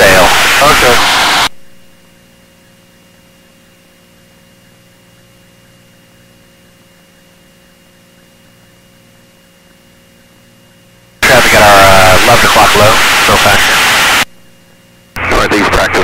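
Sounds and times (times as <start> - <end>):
electronic hiss: 0.0 - 1.5, 11.2 - 14.3.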